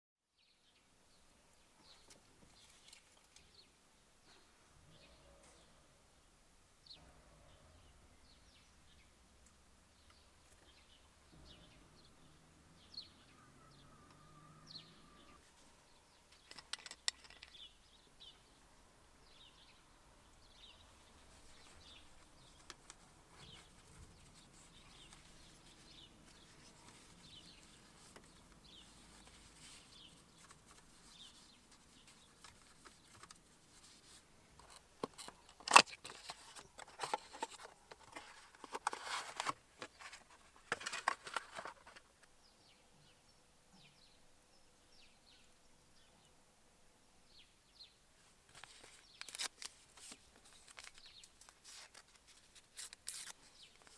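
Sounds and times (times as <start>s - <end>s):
faint bird chirps: 0.3s - 6.0s, 9.9s - 16.6s
cardboard box being opened: 34.7s - 42.0s.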